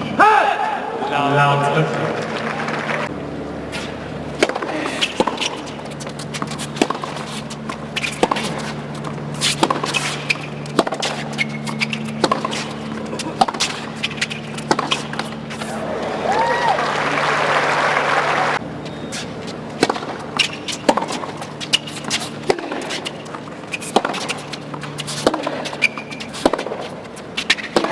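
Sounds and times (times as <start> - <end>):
racket hitting tennis ball: 3.7 - 15.8, 19.1 - 27.9.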